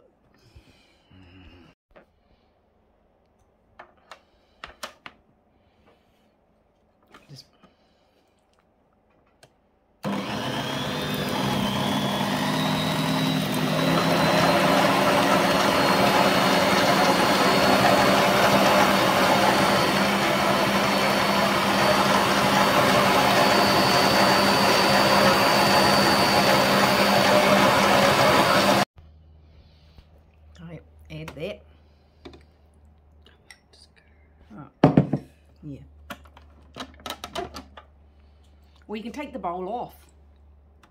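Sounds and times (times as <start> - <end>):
stand mixer motor whine: 10.0 - 28.9.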